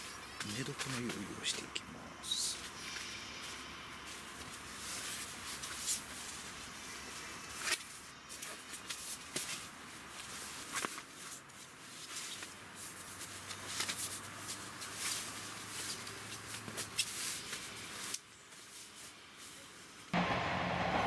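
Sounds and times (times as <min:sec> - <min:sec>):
sleeping bag fabric rustling: 0:03.5 - 0:19.6.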